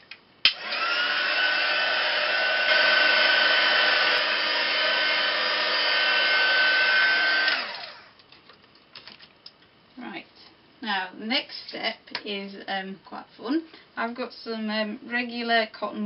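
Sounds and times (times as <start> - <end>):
heat gun whining and blowing: 0.5 - 8.1.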